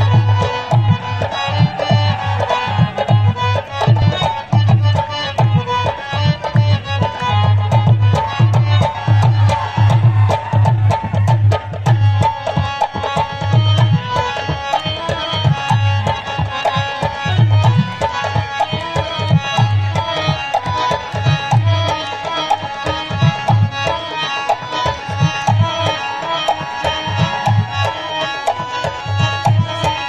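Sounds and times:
dholak drumming: 0:00.0 - 0:30.0
harmonium melody: 0:00.0 - 0:30.0.

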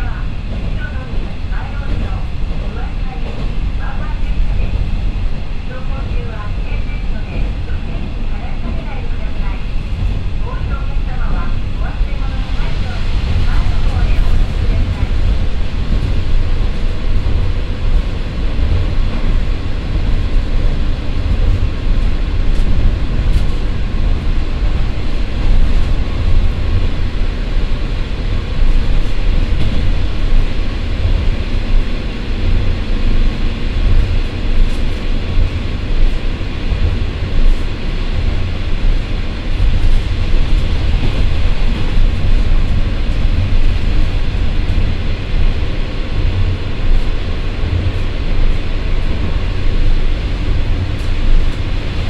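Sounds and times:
diesel railcar rumble: 0:00.0 - 0:52.0.

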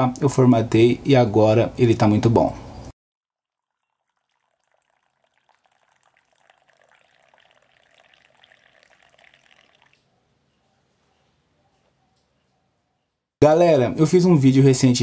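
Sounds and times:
coffee pouring into a mug: 0:03.4 - 0:10.0.

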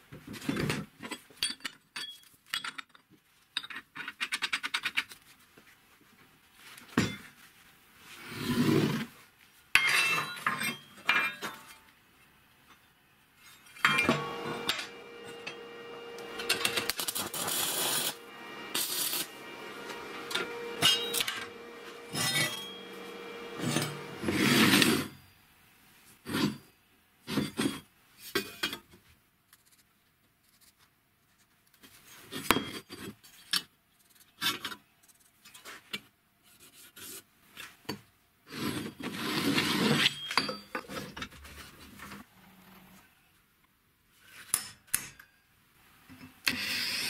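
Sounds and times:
metal-on-metal scraping: 0:13.4 - 0:25.2.

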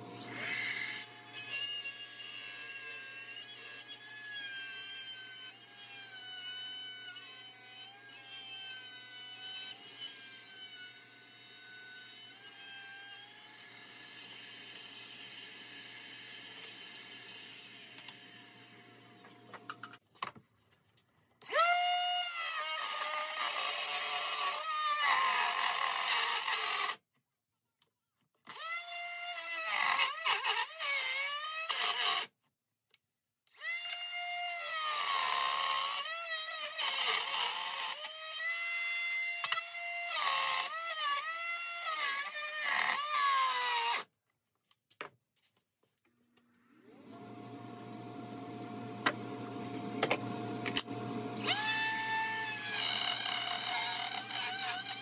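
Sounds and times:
router motor whining: 0:00.0 - 0:10.8, 0:46.7 - 0:55.0.

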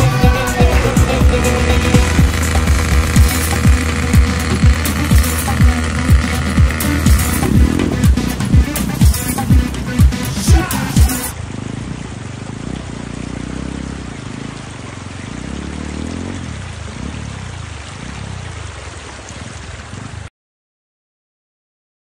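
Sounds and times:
steady rushing noise: 0:00.0 - 0:12.2
motorcycle engine running: 0:00.0 - 0:20.3.

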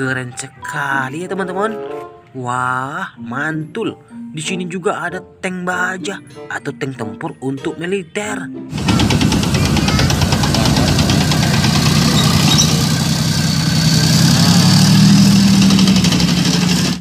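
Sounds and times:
tank tracks clattering: 0:08.8 - 0:13.4
tank engine droning: 0:08.8 - 0:17.0.

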